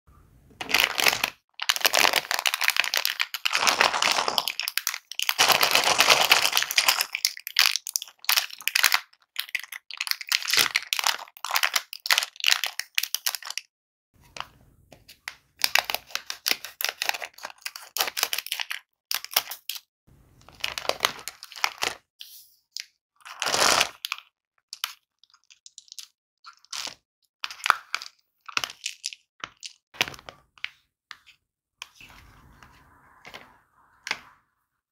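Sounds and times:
plastic wrapper crinkling: 0:00.6 - 0:13.6, 0:20.5 - 0:22.0.

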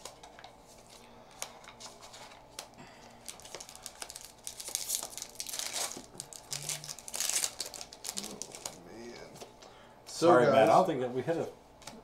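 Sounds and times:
foil wrapper crinkling and tearing: 0:00.0 - 0:09.3.

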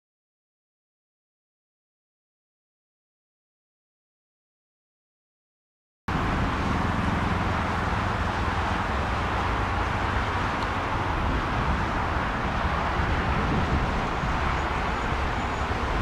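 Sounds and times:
jet engine rushing: 0:06.1 - 0:16.0.

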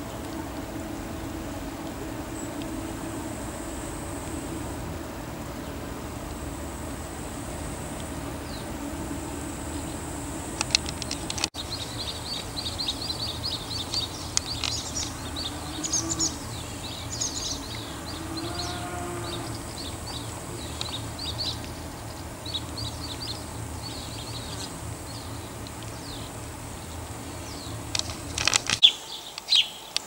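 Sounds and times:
low outdoor rumble: 0:00.0 - 0:29.5
small birds chirping: 0:09.6 - 0:30.0.

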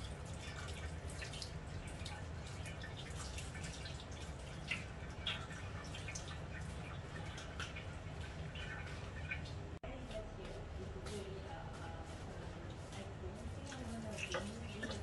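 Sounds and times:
tap water splashing: 0:00.0 - 0:09.7, 0:13.7 - 0:15.0
low steady hum: 0:00.0 - 0:15.0.

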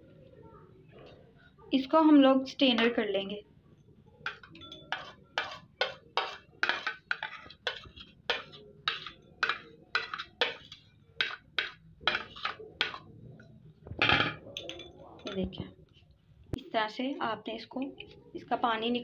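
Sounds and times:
spoon scraping a plate: 0:04.3 - 0:13.1.

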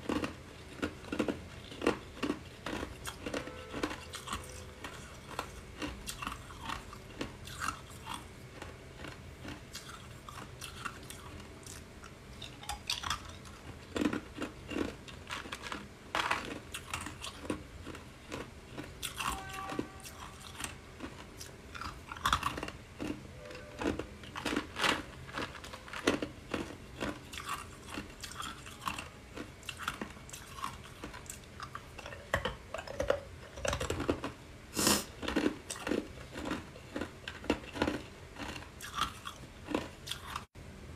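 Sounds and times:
ice cubes crunching: 0:00.0 - 0:11.8, 0:12.6 - 0:23.2, 0:23.8 - 0:32.1, 0:35.2 - 0:40.4.

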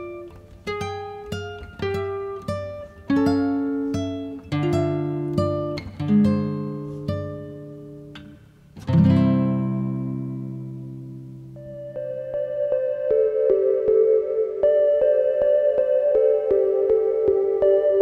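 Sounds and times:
strummed guitar chord: 0:00.0 - 0:12.0
acoustic guitar plucked notes: 0:00.0 - 0:18.0.

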